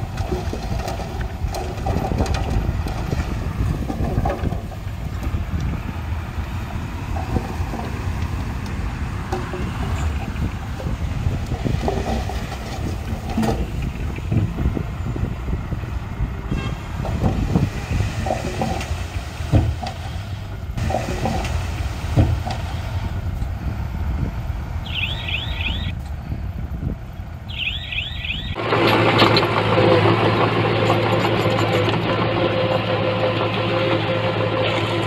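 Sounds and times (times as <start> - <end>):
metallic clanks and knocks: 0.0 - 5.7, 7.0 - 14.5, 18.2 - 20.2, 20.8 - 22.8
heavy machinery diesel engine: 0.0 - 35.0
high falling chirps: 24.8 - 25.9, 27.5 - 28.6.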